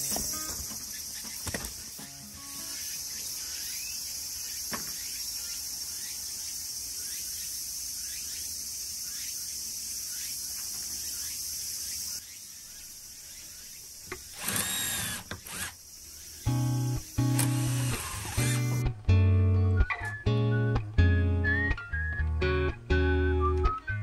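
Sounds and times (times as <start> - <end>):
high-pitched insect buzzing: 2.3 - 18.8.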